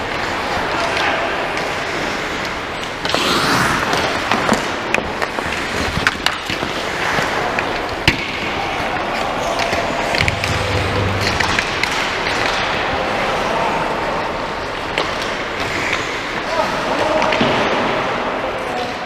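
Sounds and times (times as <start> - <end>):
hockey sticks and puck clacking: 0.0 - 13.6, 14.7 - 19.0
skates scraping on ice: 1.7 - 8.0.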